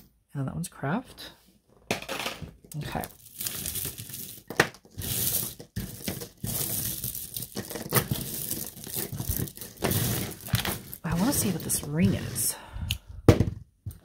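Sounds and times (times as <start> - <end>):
bead necklaces clattering: 2.6 - 12.6.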